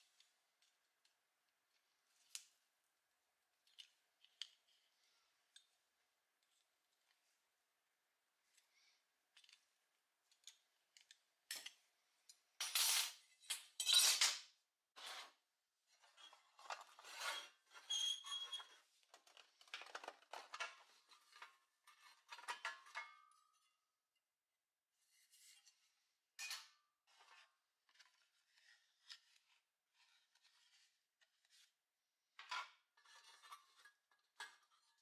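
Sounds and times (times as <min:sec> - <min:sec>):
metal and plastic parts scraping: 0:16.0 - 0:23.0.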